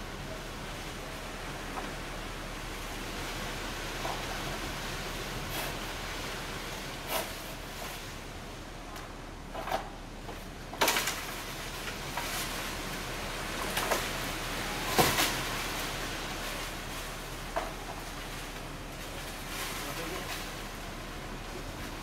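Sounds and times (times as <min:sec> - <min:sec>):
outdoor hiss: 0:00.0 - 0:22.0.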